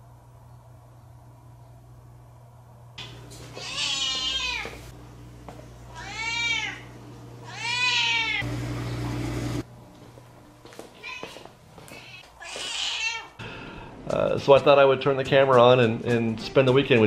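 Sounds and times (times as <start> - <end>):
cat meowing: 3.5 - 4.9, 5.9 - 8.4, 11.0 - 13.4.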